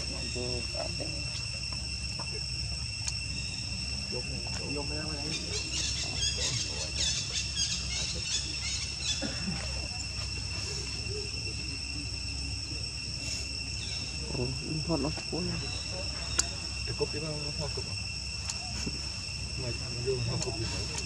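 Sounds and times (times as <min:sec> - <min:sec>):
insect chorus drone: 0:00.0 - 0:21.0
faint voices: 0:04.0 - 0:13.5, 0:14.1 - 0:21.0.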